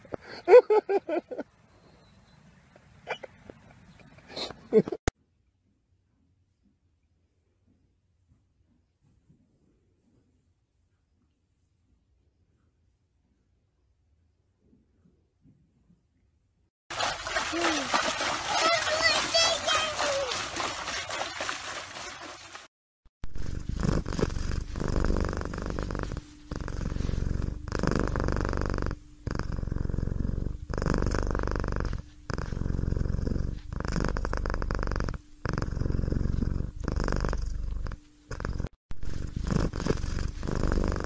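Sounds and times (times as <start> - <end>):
cat purring: 23.3 - 41.0.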